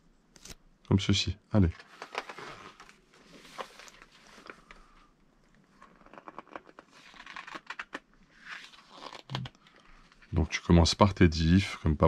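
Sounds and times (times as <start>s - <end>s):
paper rustling: 1.8s - 4.9s.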